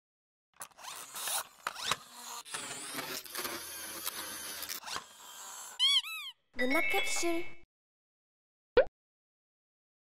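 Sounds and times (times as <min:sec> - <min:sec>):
mechanical whirring and rattling: 0:00.6 - 0:05.8.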